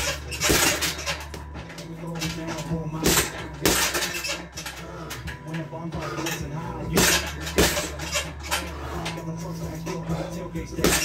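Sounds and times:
gloves punching heavy bag: 0.0s - 4.6s, 6.8s - 8.2s, 10.1s - 11.0s
metallic clinking: 0.0s - 11.0s.

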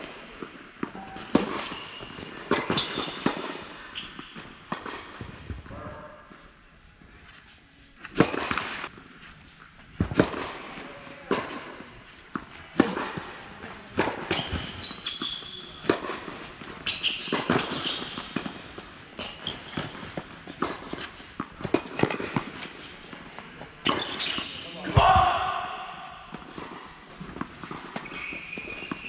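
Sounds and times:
tennis ball struck by rackets: 0.0s - 5.3s, 8.0s - 8.9s, 10.0s - 14.8s, 15.7s - 28.1s
ball bouncing on hard court: 0.0s - 6.0s, 14.0s - 18.6s, 19.2s - 22.7s
sneakers squeaking: 0.0s - 6.4s, 14.0s - 29.0s.

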